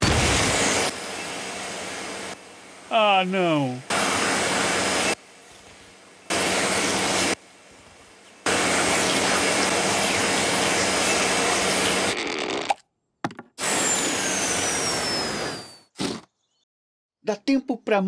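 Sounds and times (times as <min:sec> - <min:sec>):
cartoon vacuum cleaner: 0:02.9 - 0:05.2, 0:06.3 - 0:07.4, 0:08.4 - 0:12.8, 0:13.6 - 0:16.3.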